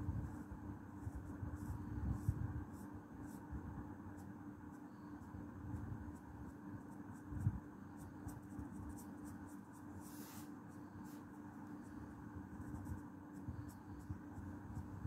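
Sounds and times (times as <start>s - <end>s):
steady low hum: 0.0s - 15.0s
marker rubbing on paper: 5.8s - 15.0s.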